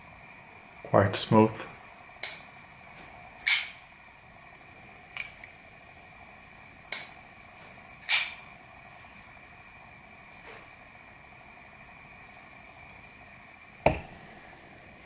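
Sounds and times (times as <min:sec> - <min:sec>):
folding knife blade clicking: 0:03.4 - 0:03.8, 0:08.0 - 0:08.4.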